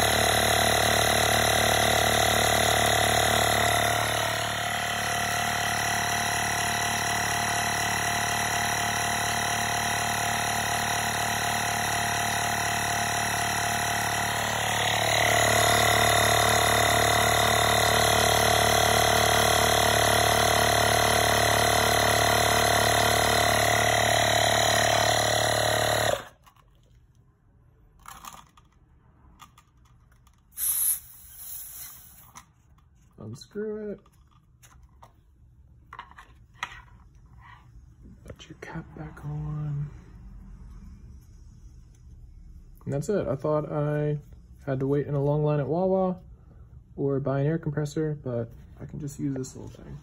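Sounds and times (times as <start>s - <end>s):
tire inflator compressor running: 0.0s - 26.9s, 29.4s - 47.2s
hose unscrewing burst: 30.5s - 32.5s.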